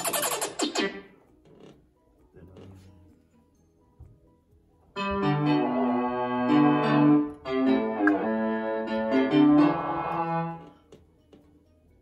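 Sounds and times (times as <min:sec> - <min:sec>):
sustained synthesizer chords: 0:05.0 - 0:10.6.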